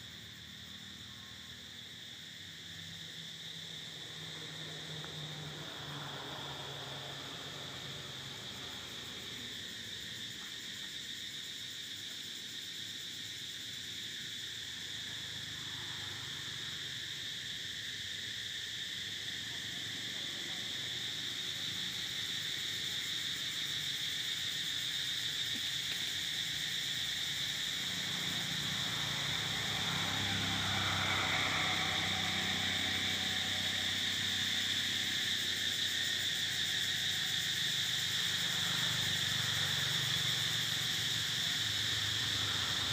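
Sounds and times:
insects droning: 0.0s - 42.9s.

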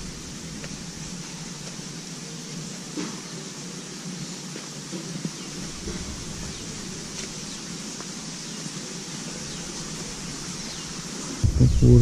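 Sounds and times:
steady high hiss: 0.0s - 12.0s
wind rumble on microphone: 11.4s - 12.0s.

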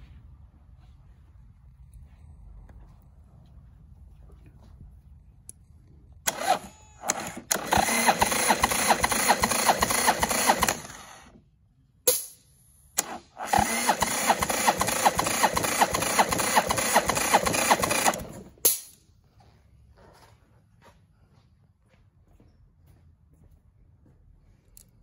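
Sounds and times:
engine cranking on starter: 6.2s - 11.4s, 13.0s - 18.6s
short clicks: 6.3s - 11.4s.

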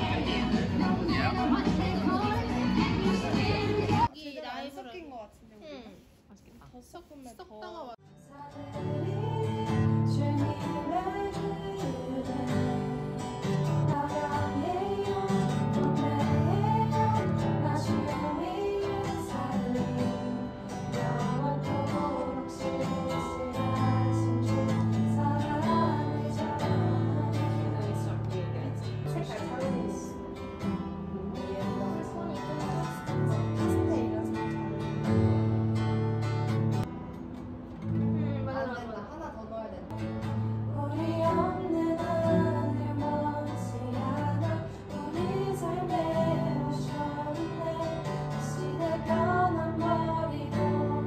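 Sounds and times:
acoustic guitar strumming: 0.0s - 4.1s, 8.1s - 38.4s, 39.9s - 51.0s
women singing worship song: 8.2s - 30.2s, 40.6s - 51.0s.

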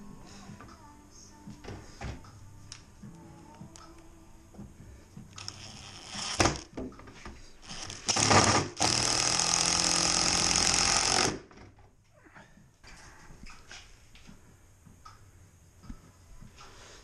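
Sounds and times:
impact driver driving screws: 7.6s - 11.5s.

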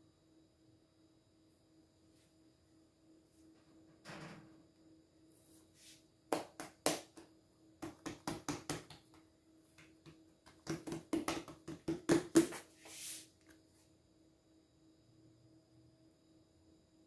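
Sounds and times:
hands patting dough: 6.3s - 13.0s.

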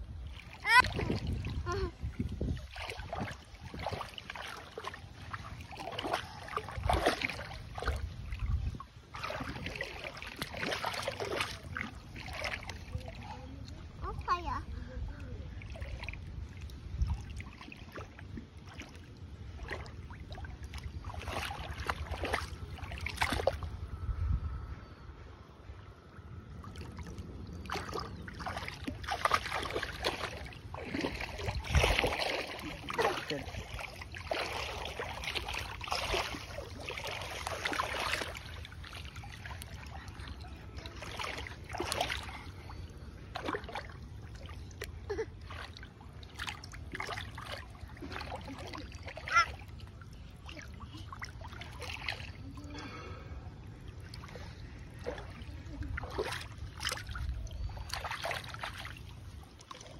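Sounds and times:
splashing in shallow water: 0.0s - 24.2s, 25.9s - 59.9s.

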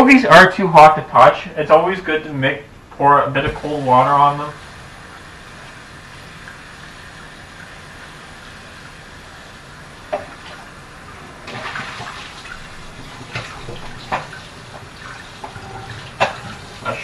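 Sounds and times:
tap water running into sink: 3.4s - 10.8s, 11.4s - 17.0s.

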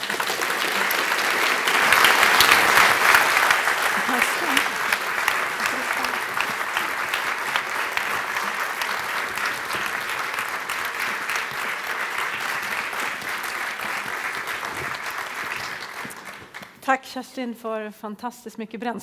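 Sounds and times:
audience applauding: 0.0s - 16.8s.

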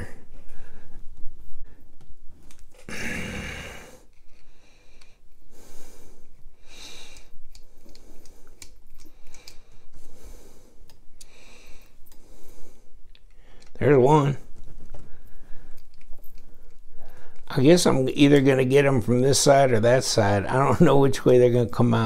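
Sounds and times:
man breathing out through nose: 2.9s - 13.7s.

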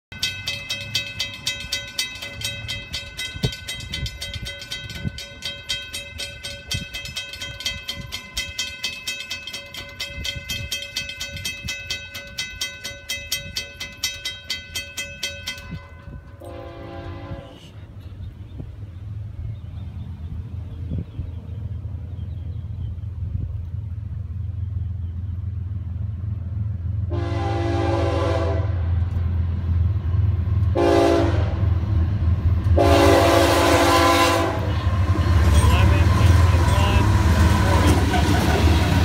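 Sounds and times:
railroad crossing bell ringing: 0.1s - 18.2s, 32.8s - 39.0s
locomotive horn blast: 16.4s - 17.8s, 27.1s - 29.1s, 30.7s - 31.7s, 32.8s - 38.1s.

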